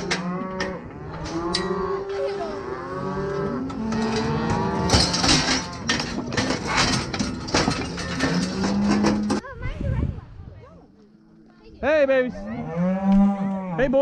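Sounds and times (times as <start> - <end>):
cattle mooing: 0.0 - 9.4, 12.3 - 14.0.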